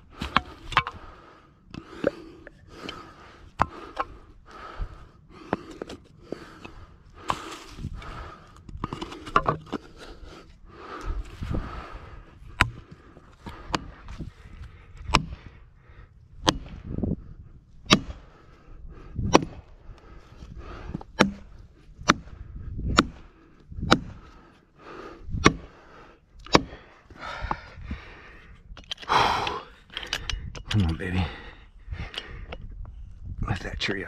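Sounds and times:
hydraulic jack clicking and knocking: 28.8 - 30.9.

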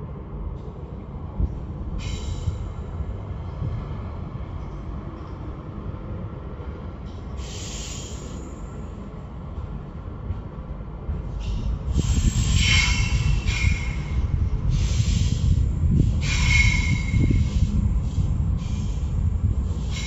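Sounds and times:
train wheels rumbling on track: 0.0 - 20.0
high rushing noise with squeal: 11.9 - 17.7.

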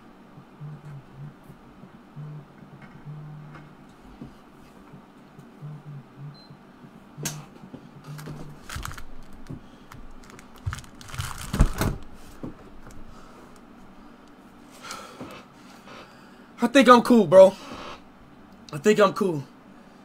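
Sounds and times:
clicks knocks and rustles: 8.1 - 13.0.

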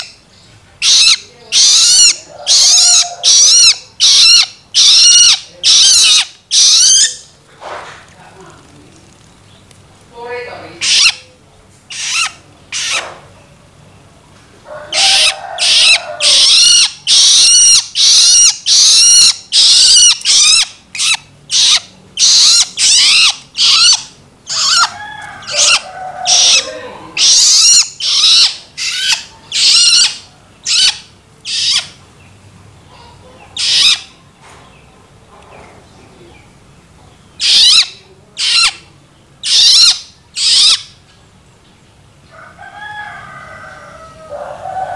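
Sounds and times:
young bird begging calls: 0.8 - 7.3, 10.6 - 13.1, 14.9 - 32.0, 33.0 - 34.1, 37.4 - 38.8, 39.4 - 41.0.

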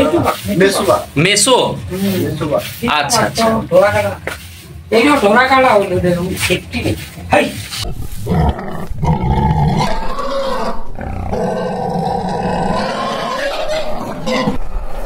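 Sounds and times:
wild cats growling: 7.8 - 15.0.

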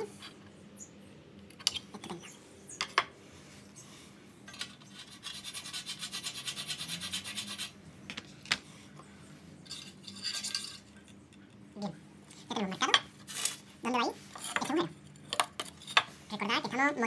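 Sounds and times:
metal scratching on aluminium: 4.5 - 7.8.

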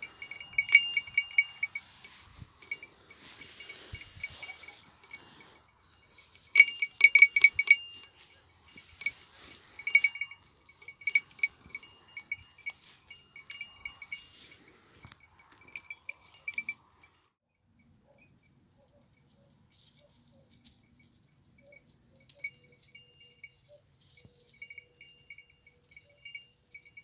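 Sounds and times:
goat bell clanking: 0.0 - 19.3, 20.6 - 27.0.

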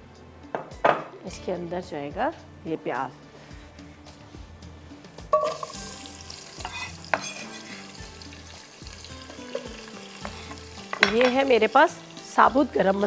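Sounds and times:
food sizzling in hot oil: 5.3 - 13.0
utensil clinking against pot: 6.6 - 7.8.

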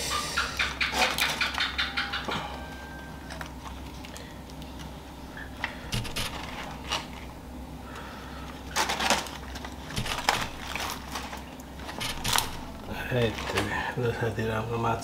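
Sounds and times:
steady low hum: 0.0 - 15.0
leaf and foil crinkling: 3.2 - 4.9, 5.5 - 14.6.

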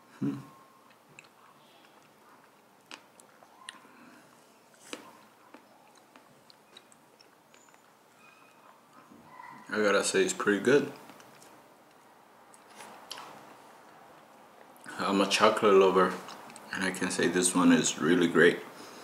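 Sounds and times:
person chewing with smacks: 0.3 - 9.2, 11.0 - 14.9, 16.1 - 16.7.

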